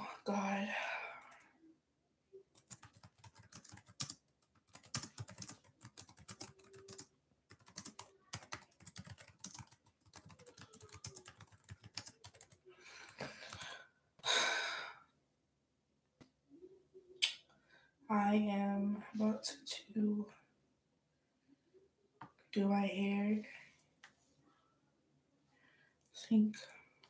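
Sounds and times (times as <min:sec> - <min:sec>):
laptop keyboard typing: 0:02.5 - 0:13.8.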